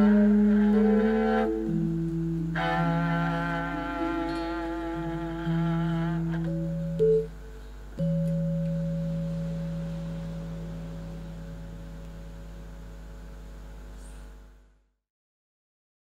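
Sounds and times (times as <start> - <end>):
gamelan struck note: 0.0 - 14.1
gong stroke ringing: 0.8 - 13.5.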